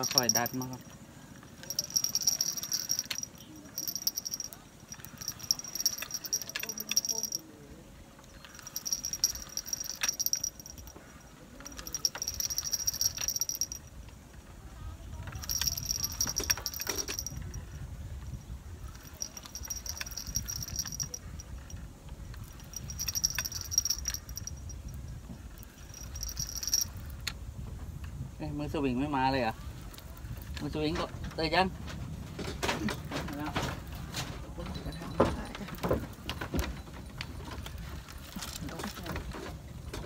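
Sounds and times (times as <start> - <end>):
spinning reel being cranked: 1.6 - 7.4, 8.3 - 11.0, 11.6 - 13.8, 15.4 - 17.7, 18.9 - 24.8, 25.5 - 27.4.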